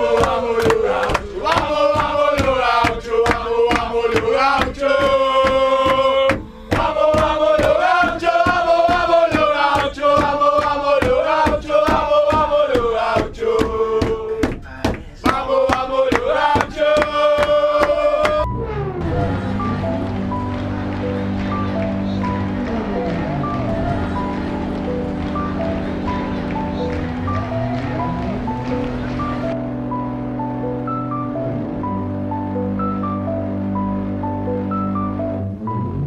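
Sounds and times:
men chanting in unison: 0.0s - 18.4s
hand claps: 0.1s - 18.5s, 20.0s - 29.6s.

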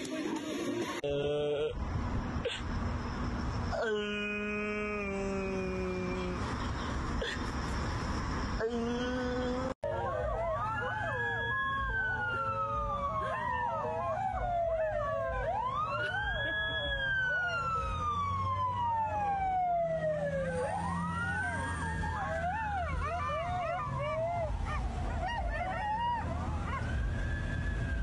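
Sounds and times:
emergency siren wailing: 7.5s - 28.0s
dogs howling: 9.8s - 18.0s, 20.7s - 27.1s.

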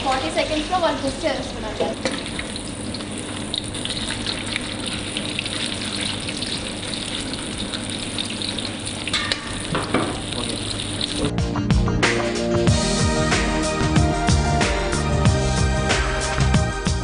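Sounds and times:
oil bubbling hiss: 0.0s - 11.3s.

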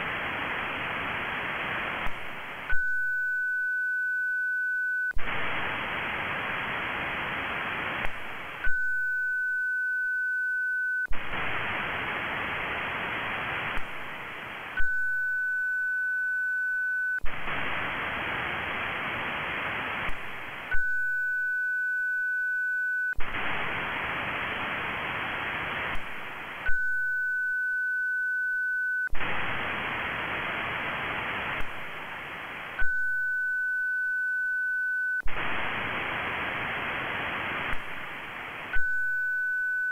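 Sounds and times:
receiver hiss: 0.0s - 39.9s
steady pure tone: 0.0s - 39.9s.

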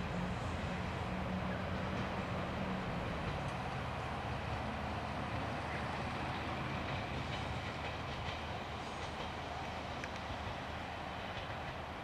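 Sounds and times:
diesel railcar engine drone: 0.0s - 12.0s
wheels clicking over rail joints: 5.7s - 12.0s.

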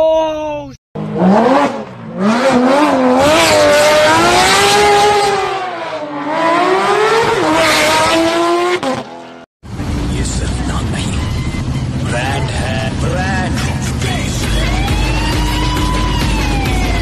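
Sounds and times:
sports car engine revving: 1.0s - 10.1s.

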